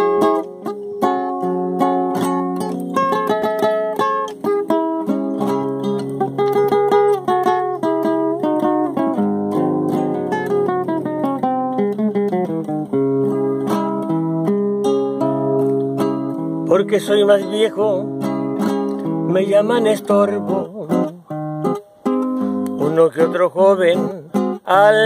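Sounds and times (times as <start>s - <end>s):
classical guitar playing: 0.0s - 25.0s.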